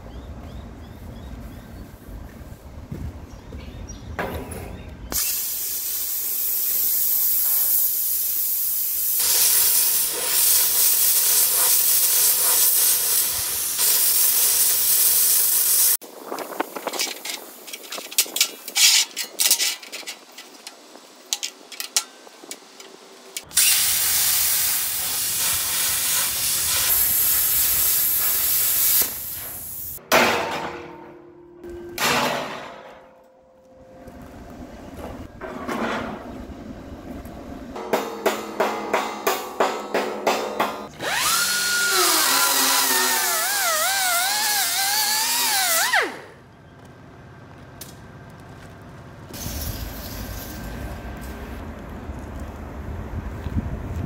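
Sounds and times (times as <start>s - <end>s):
plasma cutter hissing: 5.2s - 16.0s, 23.4s - 30.0s, 41.1s - 46.0s, 49.4s - 51.4s.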